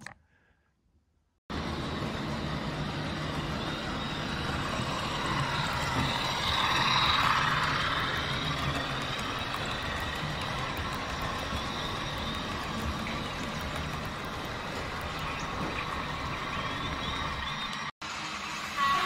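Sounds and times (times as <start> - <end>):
low hum: 1.5 - 17.9
model train running: 1.5 - 19.0.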